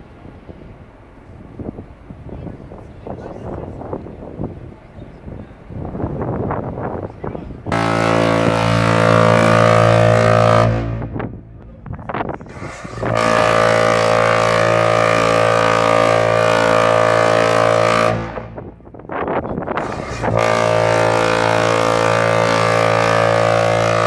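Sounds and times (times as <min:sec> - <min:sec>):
deep ship's horn blasts: 0:05.5 - 0:24.0.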